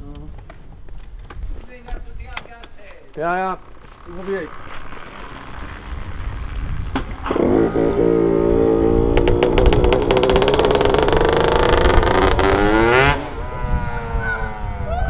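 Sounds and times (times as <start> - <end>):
two-stroke motorbike engine popping: 9.0 - 13.2.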